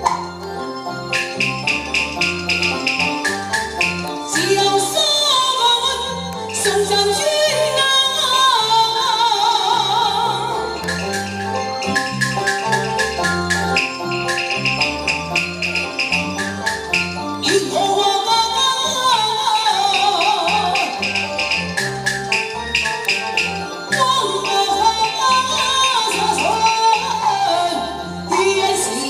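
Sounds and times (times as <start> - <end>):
live band accompaniment: 0.0 - 29.0
quick percussion strikes: 1.1 - 4.5, 10.8 - 17.4, 19.9 - 27.0
opera singing through a microphone: 4.3 - 10.8, 17.4 - 21.0, 23.9 - 29.0.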